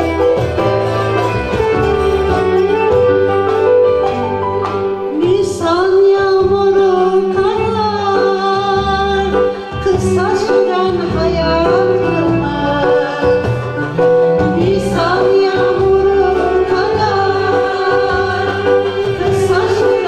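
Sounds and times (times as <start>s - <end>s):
small instrumental ensemble: 0.0s - 20.0s
woman singing: 5.1s - 20.0s.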